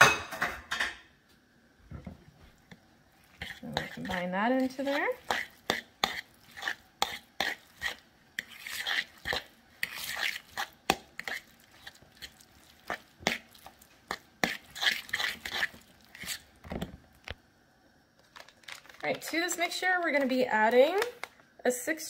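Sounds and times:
fork scraping a mixing bowl: 0:02.6 - 0:16.5.

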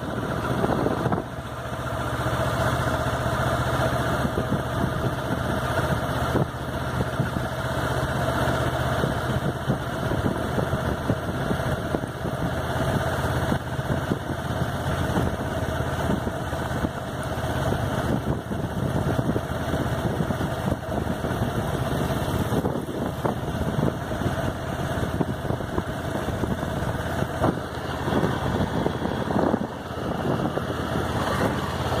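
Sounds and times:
wind rushing over microphone: 0:00.0 - 0:01.6, 0:17.7 - 0:32.0
motorcycle engine running: 0:00.0 - 0:32.0.

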